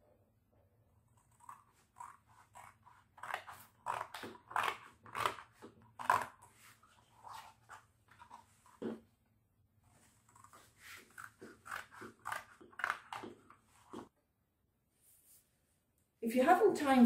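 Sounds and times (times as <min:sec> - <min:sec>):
scissors cutting cardboard: 0:01.1 - 0:09.0, 0:10.1 - 0:14.1.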